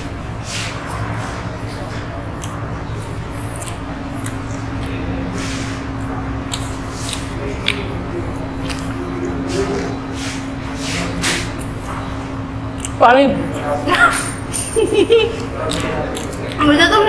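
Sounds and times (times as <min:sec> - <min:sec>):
steady low hum: 0:00.0 - 0:17.0
chewing toasted sandwich: 0:00.8 - 0:10.6, 0:15.4 - 0:16.7.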